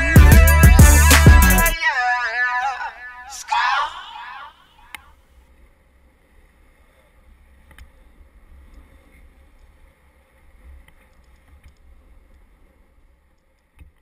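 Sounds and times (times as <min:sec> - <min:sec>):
faint clicks: 0:10.6 - 0:14.0.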